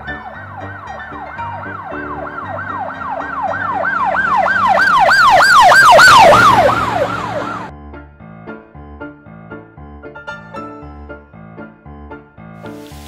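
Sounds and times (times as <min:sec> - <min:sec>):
emergency siren yelping: 0:00.2 - 0:07.7.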